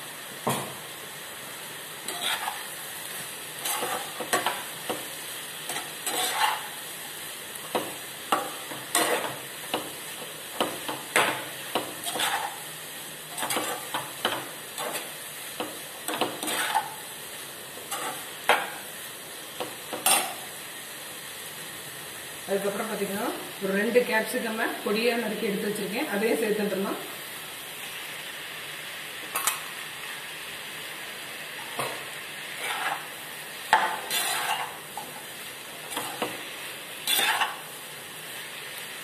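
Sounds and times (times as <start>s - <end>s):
food sizzling in frying pan: 0.0s - 39.0s
metal spatula scraping frying pan: 2.0s - 2.8s, 3.6s - 5.0s, 5.7s - 6.8s, 7.8s - 9.4s, 10.6s - 12.7s, 13.3s - 15.2s, 16.1s - 17.1s, 17.9s - 18.8s, 19.9s - 20.5s, 32.5s - 35.2s, 35.8s - 36.4s, 37.0s - 37.7s.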